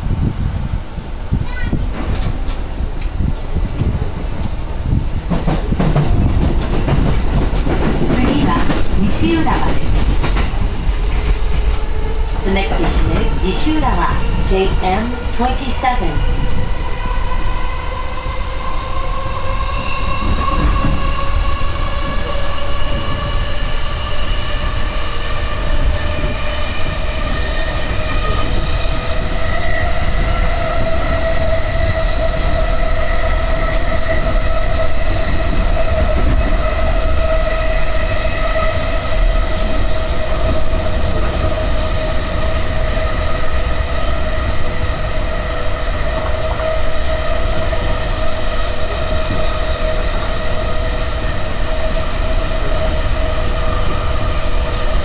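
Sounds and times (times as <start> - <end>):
wheels rumbling on rails: 0.0 - 16.7.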